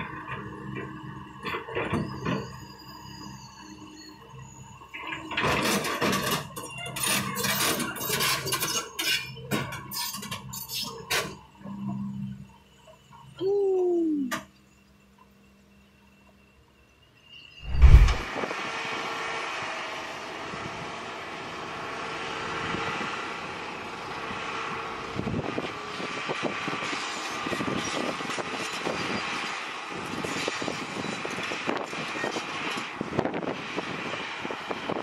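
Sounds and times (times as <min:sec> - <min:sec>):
heavy thump: 0:17.6 - 0:18.3.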